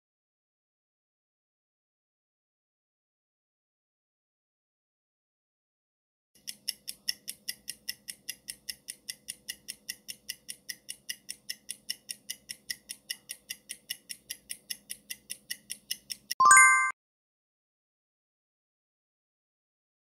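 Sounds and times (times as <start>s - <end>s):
rapid clock-like ticks: 6.4s - 16.4s.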